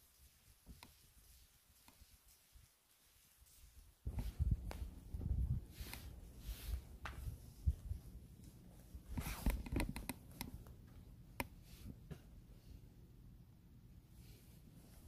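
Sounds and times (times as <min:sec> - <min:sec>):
light rustling and clicks: 0:00.6 - 0:01.2, 0:09.0 - 0:12.3.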